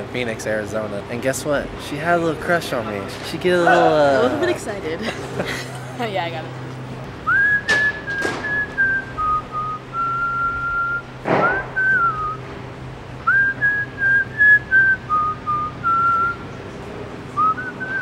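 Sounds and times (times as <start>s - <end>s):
person whistling a tune: 7.3s - 12.4s, 13.3s - 16.4s, 17.4s - 18.0s
short noisy hit: 11.2s - 12.1s.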